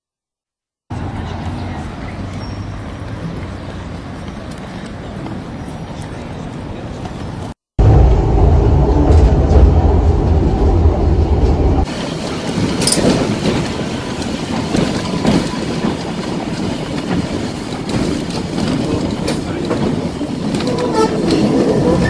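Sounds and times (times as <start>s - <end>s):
tram wheels clattering on rails: 1.0s - 22.0s
deep rumble: 7.8s - 11.9s.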